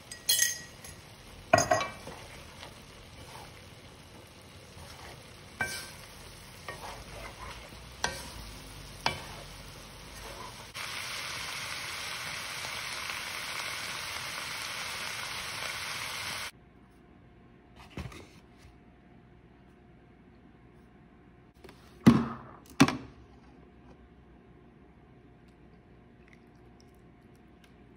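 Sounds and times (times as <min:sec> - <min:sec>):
meat sizzling in a pan: 0:00.0 - 0:16.5.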